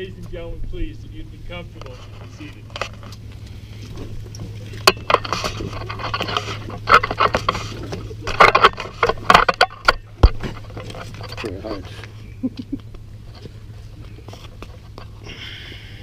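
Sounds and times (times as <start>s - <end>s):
steady low hum: 0.0s - 16.0s
camera handling rustling and knocks: 1.8s - 12.2s.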